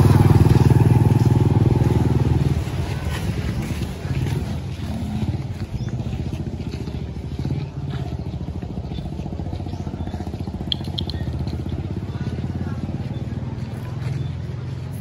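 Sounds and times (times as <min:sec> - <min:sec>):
small engine puttering: 0:00.0 - 0:15.0
high chirps: 0:10.6 - 0:11.4.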